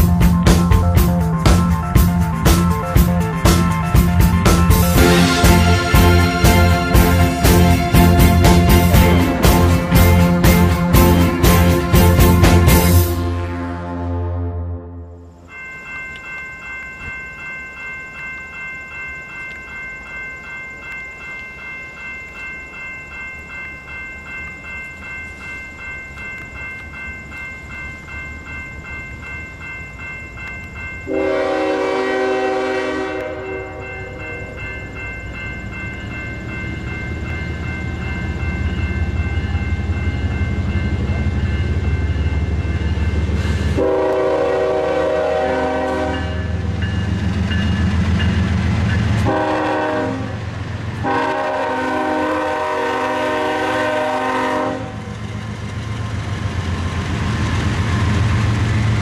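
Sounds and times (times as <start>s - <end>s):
crossing warning bell ringing: 0.0s - 59.0s
locomotive air horn blast: 11.4s - 15.3s, 31.1s - 33.8s, 43.8s - 46.4s, 49.2s - 50.4s, 51.0s - 55.0s.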